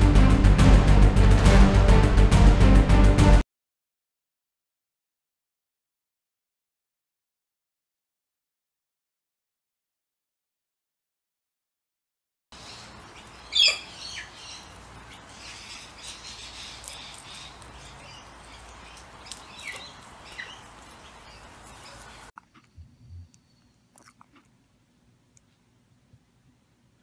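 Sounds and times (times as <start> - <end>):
guinea pigs squeaking: 13.2 - 23.2.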